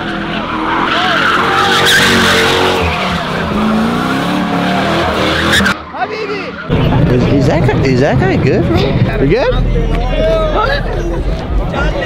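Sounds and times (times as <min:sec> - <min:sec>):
car engine revving: 0:00.0 - 0:05.8
tyres squealing: 0:00.2 - 0:07.0.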